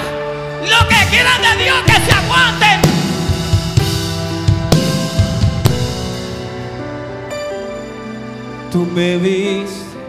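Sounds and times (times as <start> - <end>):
band chords ringing: 0.6 - 9.4
drum kit hits: 1.8 - 6.6.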